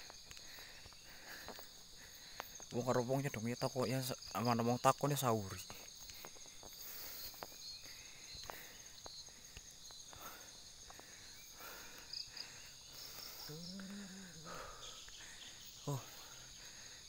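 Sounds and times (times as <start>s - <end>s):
footsteps on stony dirt track: 0.0s - 3.5s, 4.2s - 13.2s
high-pitched insect chorus: 0.0s - 17.0s.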